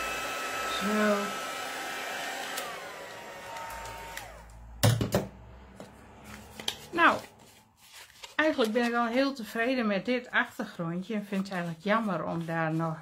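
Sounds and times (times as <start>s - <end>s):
heat tool motor whine: 0.0s - 4.6s
paper crinkling: 6.4s - 9.0s.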